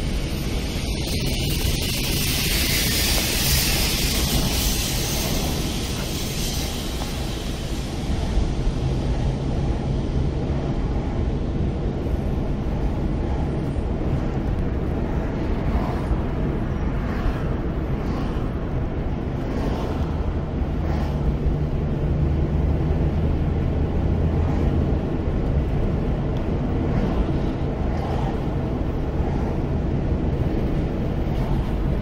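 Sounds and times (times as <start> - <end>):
bright hiss: 0.0 - 9.1
car interior road noise: 0.0 - 32.0.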